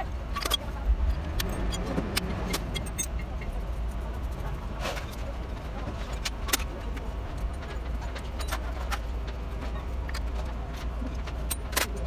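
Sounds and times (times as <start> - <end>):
steady low hum: 0.0 - 12.0
metallic clicks of hand tools: 0.3 - 3.2.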